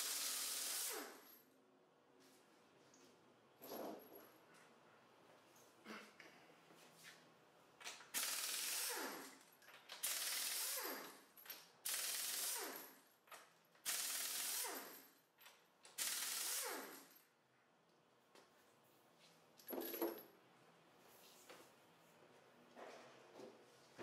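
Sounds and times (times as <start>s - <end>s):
pneumatic impact wrench bursts: 0.0s - 1.3s, 8.1s - 9.4s, 10.0s - 12.9s, 13.8s - 15.0s, 16.0s - 17.1s.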